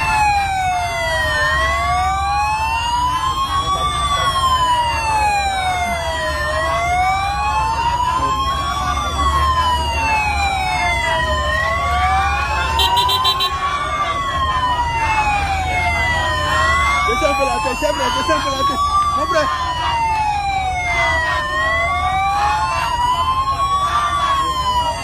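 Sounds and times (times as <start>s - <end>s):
police sirens wailing: 0.0s - 25.0s
vehicles rumbling: 0.0s - 25.0s
rapid high beeps: 12.7s - 13.5s.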